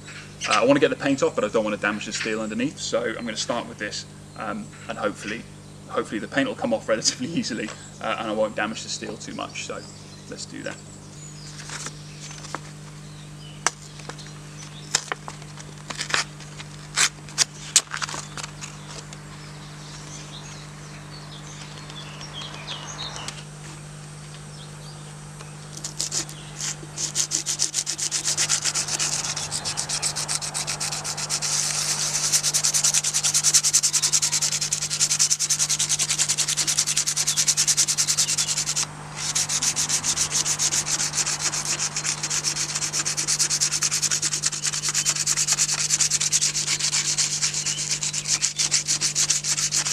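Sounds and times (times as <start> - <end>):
sandpaper rasping on metal: 25.8 - 49.9.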